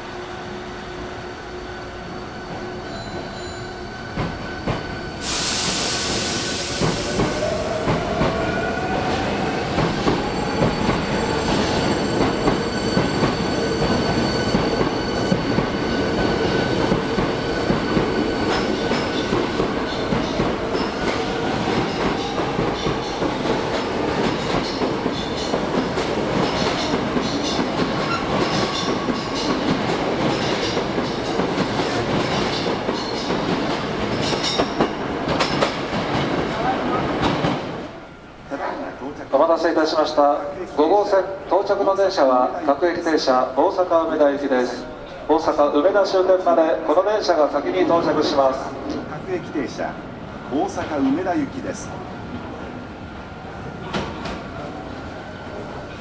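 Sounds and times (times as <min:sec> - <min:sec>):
air hiss: 0:05.2 - 0:07.9.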